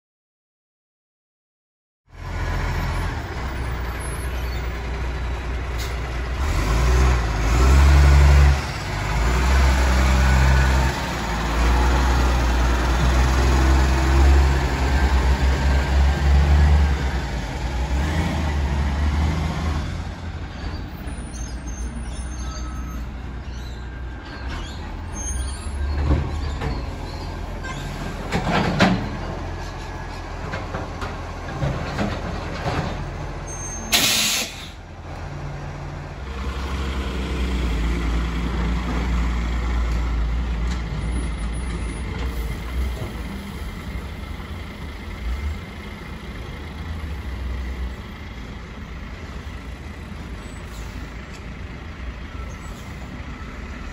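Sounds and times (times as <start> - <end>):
garbage truck diesel engine: 2.1 - 53.9
short sharp burst of noise: 33.9 - 34.8.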